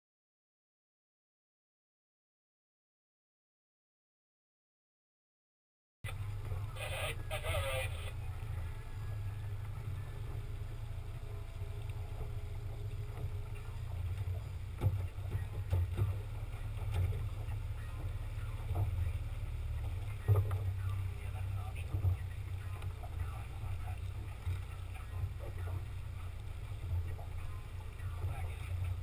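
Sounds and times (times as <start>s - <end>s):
outboard motor humming: 6.1s - 29.0s.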